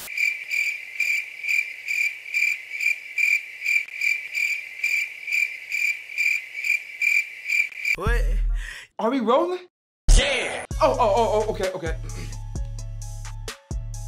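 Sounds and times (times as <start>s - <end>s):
cricket chirping: 0.0s - 8.0s.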